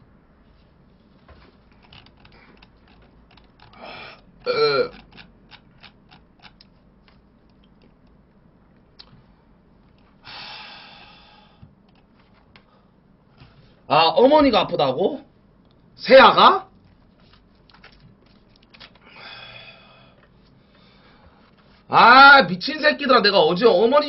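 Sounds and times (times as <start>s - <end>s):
person gulping: 3.6s - 5.4s
man burping loudly: 3.8s - 5.1s
long breathy sound: 10.2s - 11.6s.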